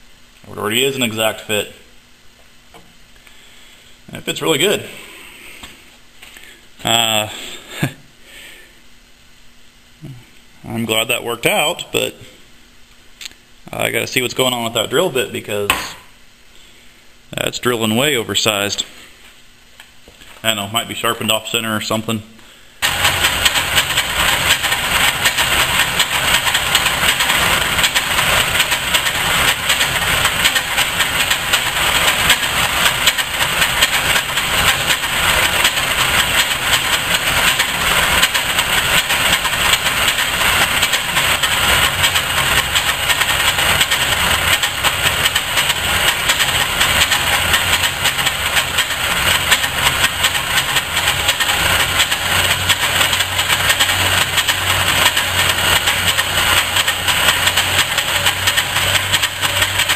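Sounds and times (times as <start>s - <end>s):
metal lathe machining: 22.8s - 59.9s.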